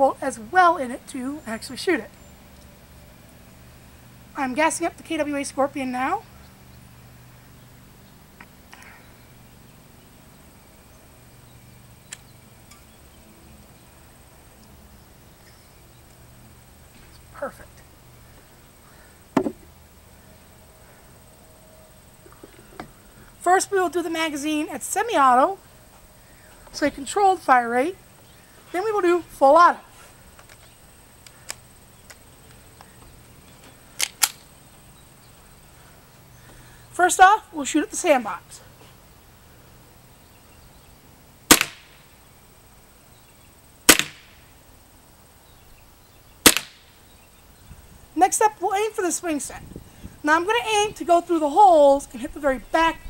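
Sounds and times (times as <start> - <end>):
light clicks: 12.0 - 12.9
airsoft gun sharp clacks: 41.5 - 42.0, 43.9 - 44.3, 46.5 - 46.9.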